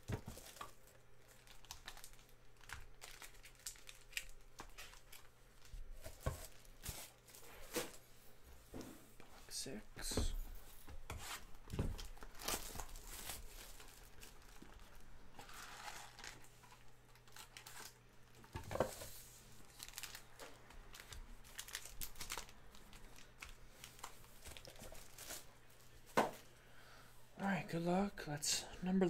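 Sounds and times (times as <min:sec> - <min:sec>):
foil packs crinkling: 0:00.0 - 0:08.1, 0:11.4 - 0:26.5.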